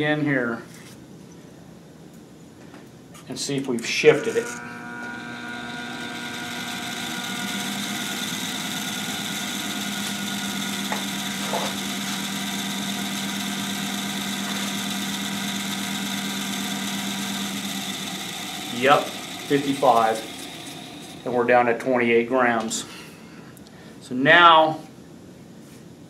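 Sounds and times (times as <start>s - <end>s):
balancing machine humming: 3.7s - 22.8s.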